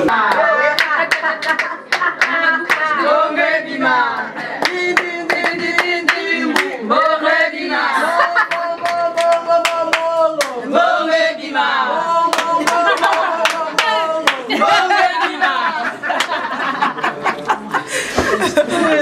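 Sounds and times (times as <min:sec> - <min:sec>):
women singing together: 0:00.0 - 0:17.0
hands clapping a beat: 0:00.1 - 0:03.0, 0:04.6 - 0:06.8, 0:08.4 - 0:10.6, 0:12.3 - 0:14.6, 0:16.1 - 0:16.4.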